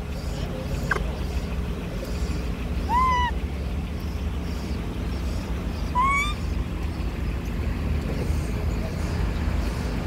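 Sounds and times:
low rumble of road traffic: 0.0s - 10.0s
monkey coo: 2.9s - 3.4s, 5.9s - 6.5s.

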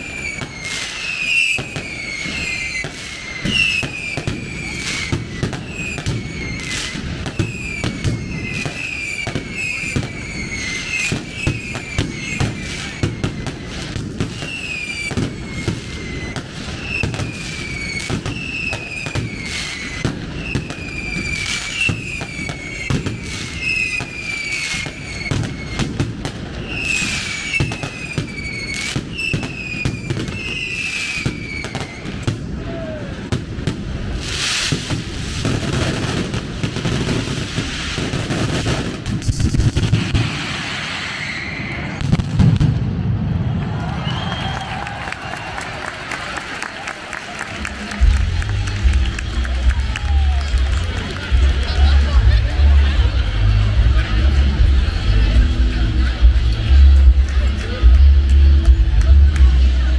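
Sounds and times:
firework whistles falling in pitch: 0.0s - 42.8s, 43.4s - 45.9s
firework cracks: 0.0s - 55.0s.

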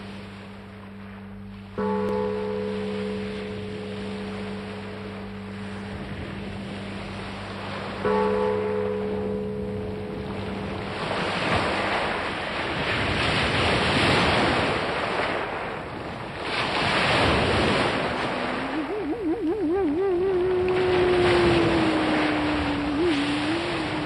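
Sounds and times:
surf rushing: 10.0s - 24.0s
wavering pitched tone: 17.7s - 24.0s
held pitched notes: 17.9s - 24.0s.

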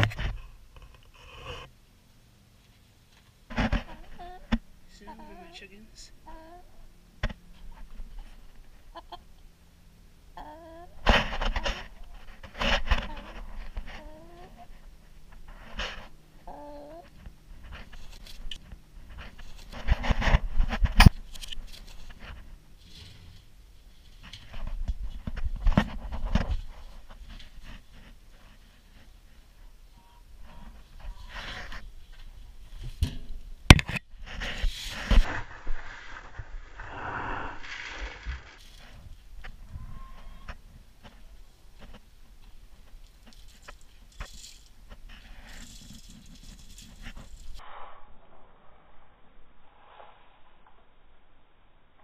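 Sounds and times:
chicken calling: 3.8s - 6.9s, 8.9s - 9.3s
microphone handling noise: 11.0s - 16.2s, 17.0s - 22.6s, 30.4s - 41.2s
feathers rustling: 34.3s - 39.2s, 43.1s - 47.6s.

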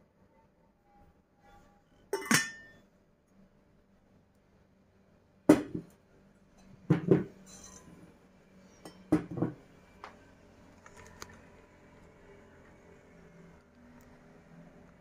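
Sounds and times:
teapots clinking on metal tray: 2.2s - 2.7s.

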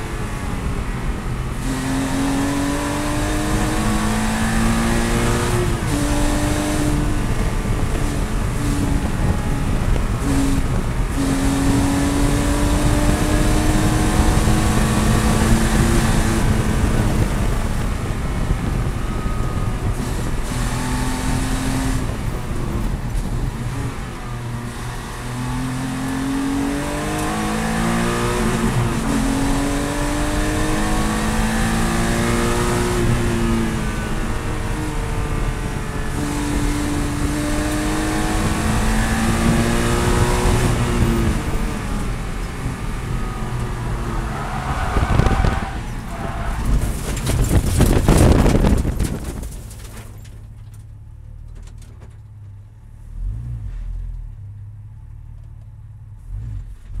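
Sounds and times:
racing car engine: 0.0s - 50.8s
grass and dirt striking car: 0.0s - 57.0s
engine idling and blipping: 14.1s - 20.8s, 40.6s - 57.0s.

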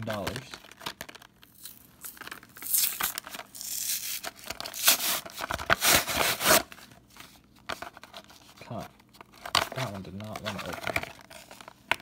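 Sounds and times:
blister pack being torn open: 0.3s - 6.7s.

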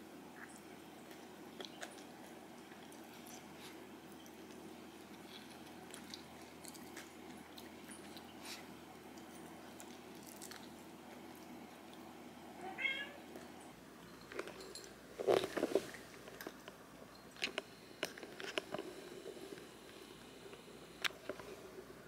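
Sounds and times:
cat meowing: 12.6s - 13.2s.

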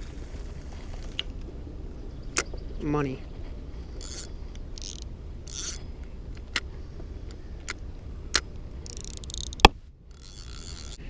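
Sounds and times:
low steady rumble: 0.0s - 11.0s
fishing reel clicks and rustles: 3.8s - 6.7s, 7.3s - 11.0s.

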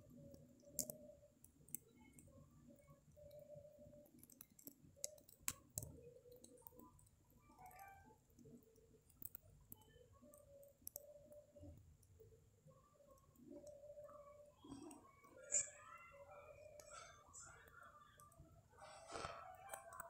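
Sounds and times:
sharp clicks: 0.6s - 11.2s.

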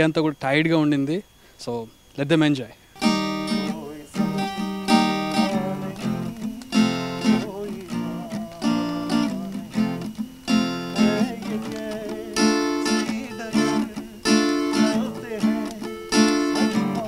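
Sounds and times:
acoustic guitar strumming: 3.0s - 17.0s
man singing: 3.4s - 17.0s.

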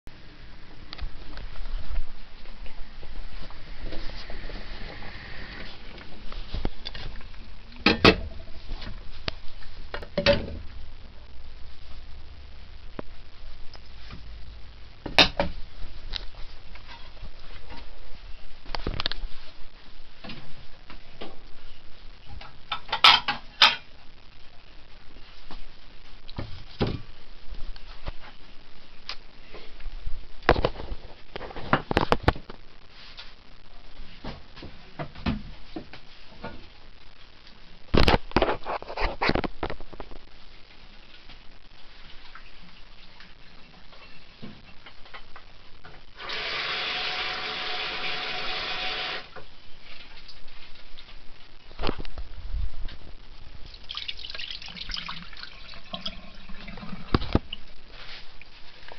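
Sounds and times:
steady low rumble: 0.1s - 22.3s.

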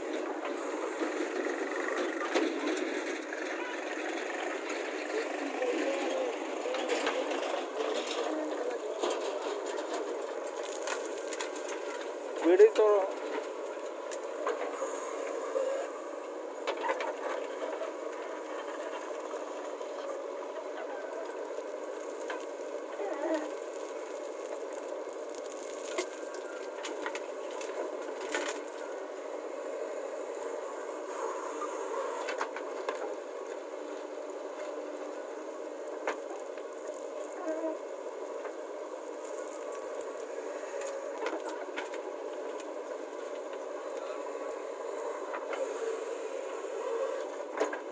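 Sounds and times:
heavy diesel machinery running: 0.0s - 22.4s
diesel engines running: 0.0s - 47.9s.

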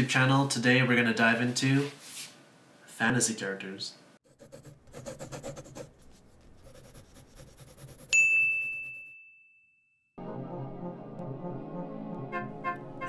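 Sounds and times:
bell-like ding: 8.2s - 10.2s
music: 10.2s - 13.0s.

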